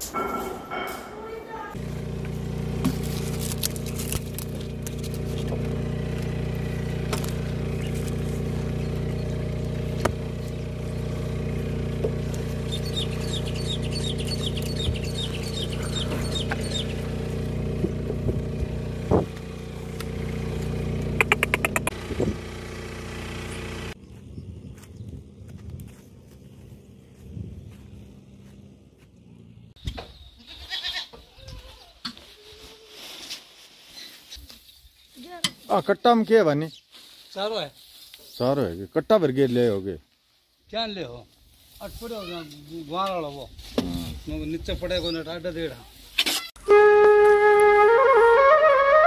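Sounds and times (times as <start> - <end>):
vehicle engine idling: 1.8 - 29.8
quick high chirps: 21.2 - 22.0.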